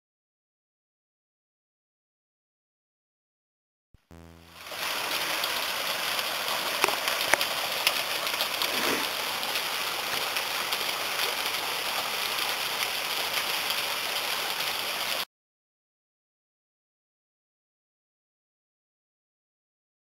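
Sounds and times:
waterfall rushing: 0:04.6 - 0:15.2.

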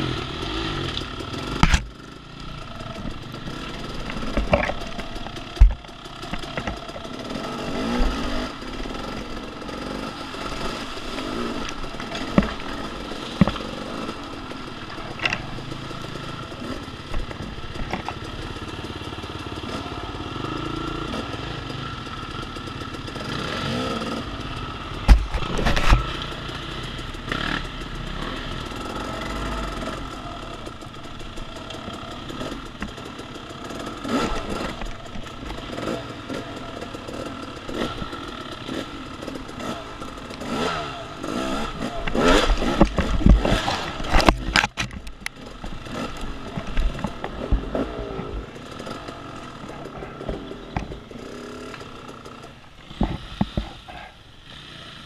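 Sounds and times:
dirt bike engine drone: 0:00.0 - 0:55.0
knocks and clatter: 0:02.6 - 0:07.2, 0:41.8 - 0:49.0.

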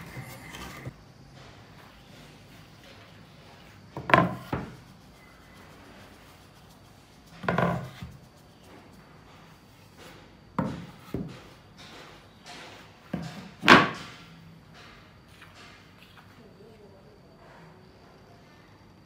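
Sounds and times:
wood scraping on table: 0:00.0 - 0:00.9, 0:03.2 - 0:04.8, 0:07.4 - 0:08.2.

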